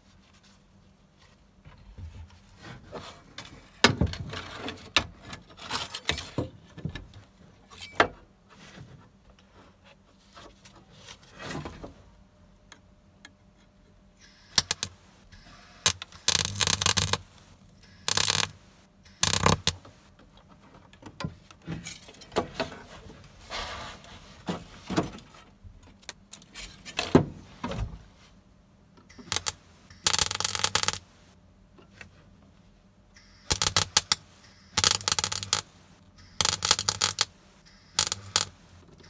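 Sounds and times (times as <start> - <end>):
welder arc crackling: 14.3 - 20.0, 29.1 - 31.3, 33.2 - 38.8.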